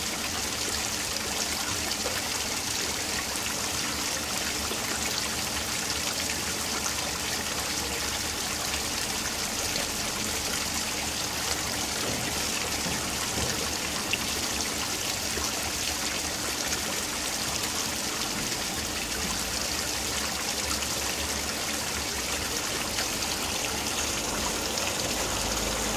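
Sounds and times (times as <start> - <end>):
fountain water splashing: 0.0 - 25.9.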